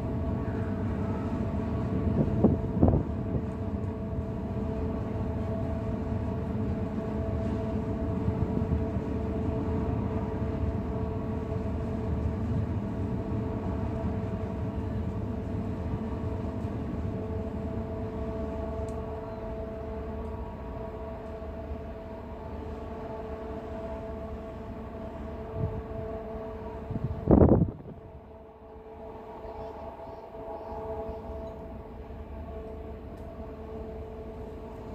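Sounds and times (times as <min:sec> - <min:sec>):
constant droning hum: 0:00.0 - 0:34.9
ship machinery rumble: 0:00.0 - 0:34.9.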